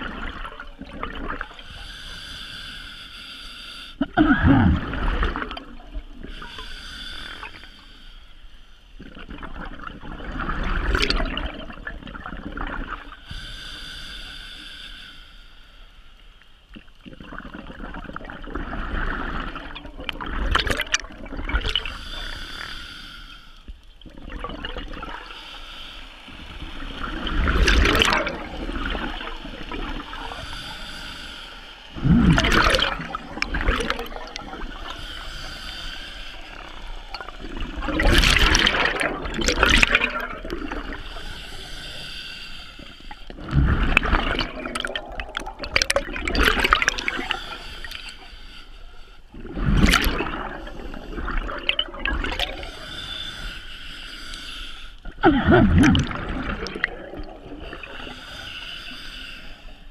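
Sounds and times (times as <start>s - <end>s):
exhaled bubbles rushing: 0.0s - 1.6s, 4.0s - 6.4s, 9.0s - 13.1s, 17.1s - 21.9s, 24.0s - 25.3s, 26.6s - 30.4s, 32.0s - 35.0s, 36.5s - 41.0s, 43.3s - 47.4s, 49.4s - 52.8s, 55.2s - 58.0s
regulator hiss and gurgle: 0.0s - 59.9s.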